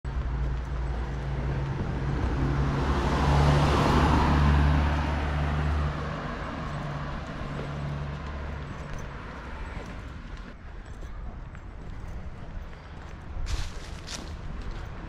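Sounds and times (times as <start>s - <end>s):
vehicle engine passing: 0.2s - 10.4s.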